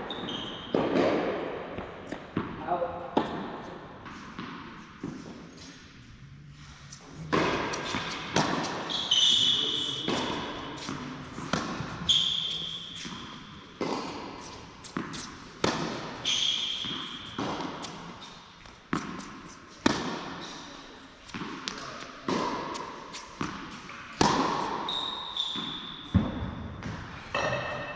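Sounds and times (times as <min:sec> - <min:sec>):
sneakers squeaking on court: 0:00.0 - 0:01.2, 0:07.2 - 0:19.8, 0:21.3 - 0:27.9
racquet striking tennis ball: 0:00.1 - 0:05.4, 0:07.2 - 0:20.4, 0:21.3 - 0:27.9
tennis ball bouncing: 0:00.1 - 0:05.7, 0:07.2 - 0:08.9, 0:09.8 - 0:20.4, 0:21.2 - 0:27.8.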